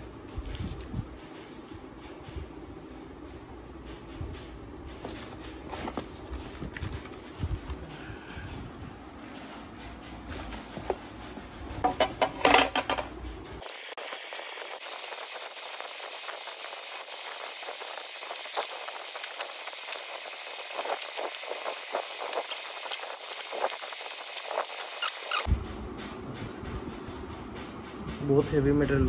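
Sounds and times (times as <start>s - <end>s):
plastic packaging crinkling and tearing: 13.6s - 25.5s.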